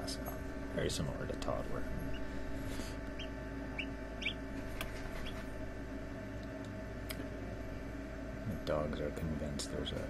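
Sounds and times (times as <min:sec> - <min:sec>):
steady hum: 0:00.0 - 0:10.0
chicks peeping: 0:02.0 - 0:05.6.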